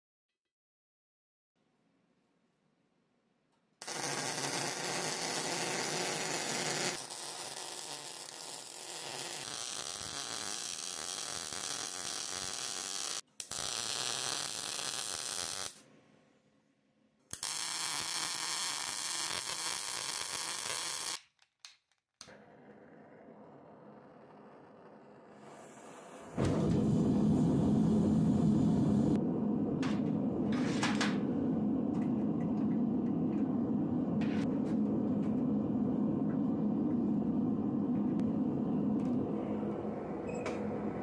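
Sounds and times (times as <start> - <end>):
arc welder crackling and buzzing: 3.8 - 15.8, 17.3 - 21.3.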